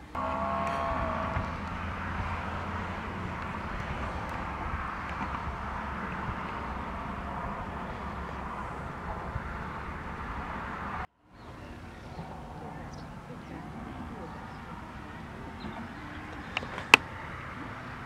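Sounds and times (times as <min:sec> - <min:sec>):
low rumble: 0:00.0 - 0:11.1.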